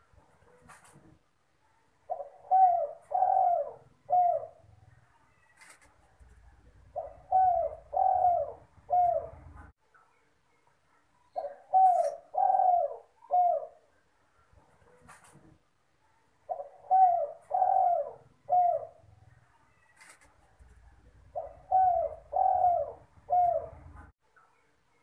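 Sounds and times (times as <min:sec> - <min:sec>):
dove cooing: 0:02.1 - 0:04.8, 0:06.6 - 0:09.7, 0:11.3 - 0:13.9, 0:16.5 - 0:19.2, 0:21.0 - 0:24.1.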